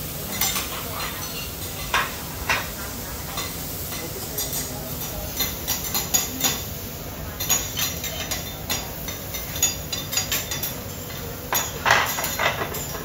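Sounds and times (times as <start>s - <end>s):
food sizzling on griddle: 0.0s - 13.0s
metal spatulas clacking and scraping: 7.4s - 13.0s.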